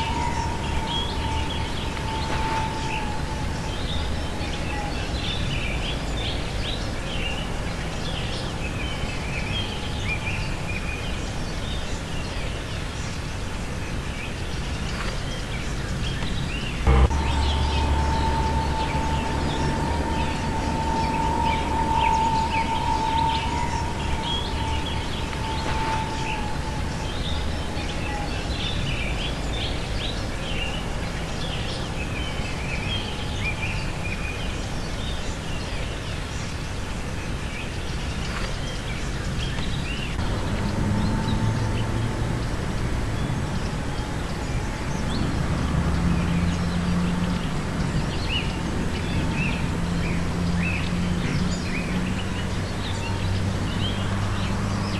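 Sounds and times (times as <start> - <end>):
low rumble: 14.4 - 35.7
faint hum: 16.8 - 31.2
birds calling in flight: 16.9 - 27.5.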